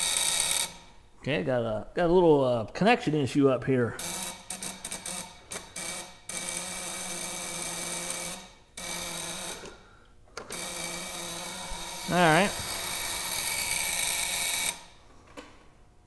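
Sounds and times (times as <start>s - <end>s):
ignition coil buzzing: 4.0s - 15.0s.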